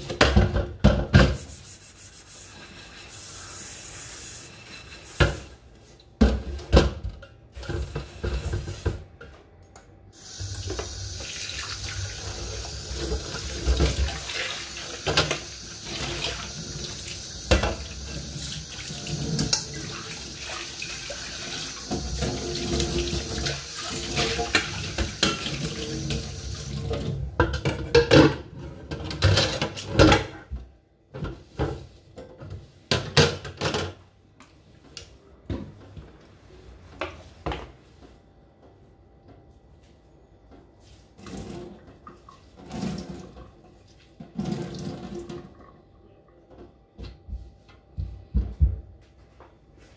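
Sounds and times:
pan scrubbed by hand: 1.2 - 5.7, 10.3 - 26.8
tap running into a sink: 10.3 - 26.8
pans and utensils clattering: 26.8 - 30.5.

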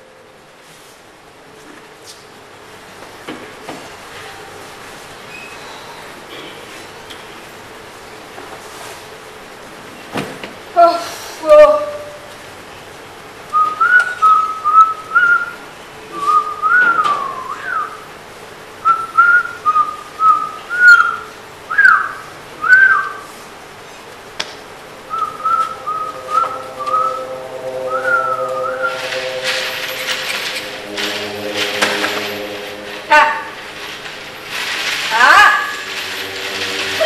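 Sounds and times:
steady held tone: 24.7 - 37.0
person whistling a tune: 25.1 - 29.4.

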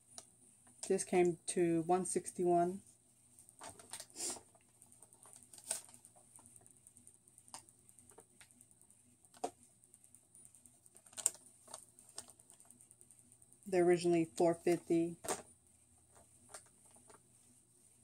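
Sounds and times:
paper and plastic packaging rustling: 3.6 - 4.5, 5.2 - 6.0, 11.0 - 12.6.

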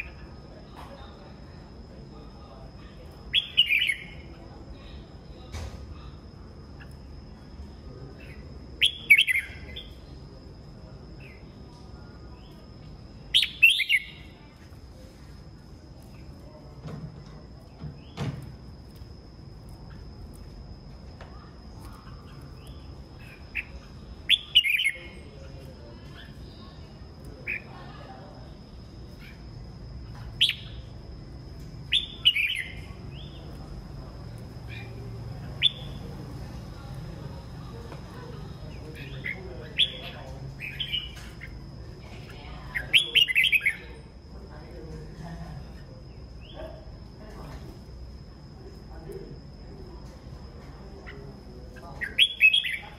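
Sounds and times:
birds chirping: 0.0 - 48.1, 50.4 - 52.9
bird singing short phrases: 3.0 - 5.0, 8.2 - 10.2, 13.2 - 14.4, 21.8 - 25.4, 31.8 - 33.6, 34.6 - 36.2, 38.3 - 44.0, 51.8 - 52.9.

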